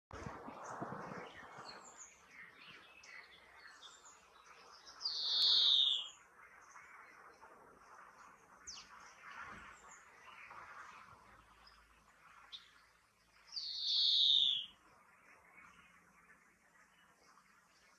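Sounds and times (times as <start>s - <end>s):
faint high chirps: 4.9s - 6.2s, 13.6s - 14.8s
wheezy falling bird call: 5.0s - 6.2s, 13.6s - 14.8s.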